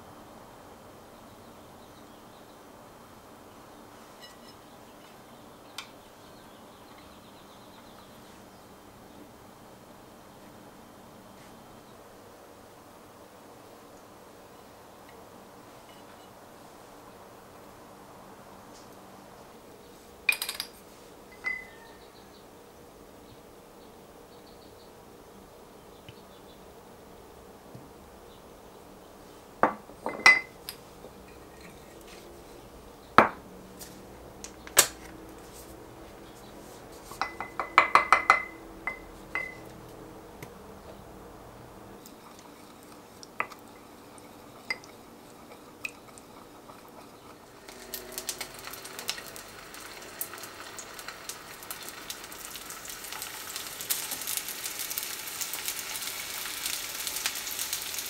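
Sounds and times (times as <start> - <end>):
wooden spoon clinking ceramic bowl: 21.3 - 21.8, 30.1 - 31.9, 37.2 - 39.7
food sizzling in a frying pan: 42.0 - 58.0.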